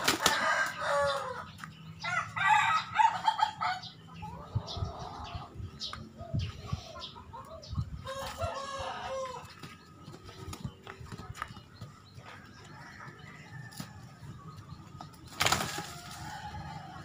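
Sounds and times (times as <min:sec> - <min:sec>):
chickens clucking: 0:00.0 - 0:17.0
rooster crowing: 0:08.1 - 0:09.4.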